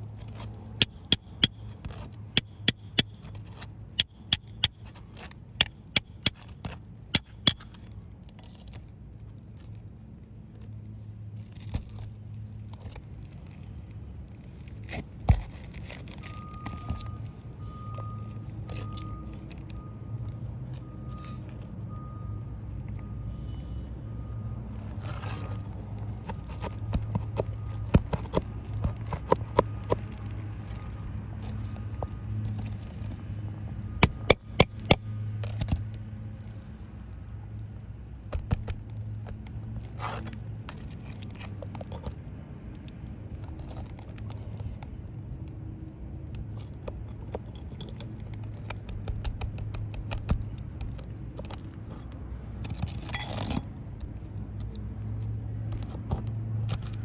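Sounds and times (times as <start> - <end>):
pry bar scraping shingles: 0.2 - 8.7, 26.2 - 30.8, 34.0 - 35.8, 38.3 - 42.1, 46.6 - 54.1.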